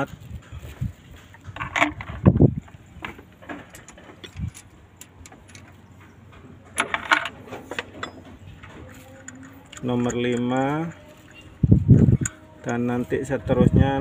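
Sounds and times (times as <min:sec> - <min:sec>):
metal valve parts clinking: 0:03.6 - 0:05.9, 0:06.7 - 0:12.9.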